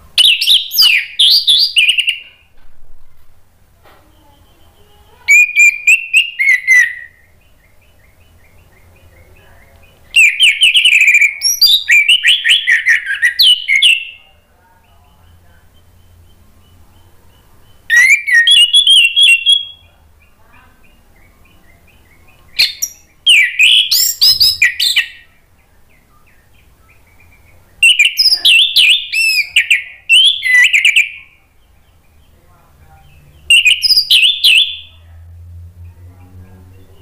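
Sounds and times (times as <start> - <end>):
faint bird chirping: 0.0 - 37.0
thrush singing whistled phrases: 0.2 - 2.2, 5.3 - 7.4, 10.1 - 14.2, 17.7 - 19.9, 22.6 - 25.3, 27.8 - 31.4, 33.4 - 35.0.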